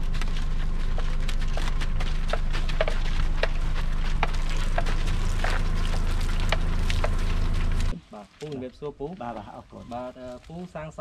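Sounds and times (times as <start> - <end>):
low rumble: 0.0 - 10.4
wooden cattle bells clacking: 1.5 - 7.9.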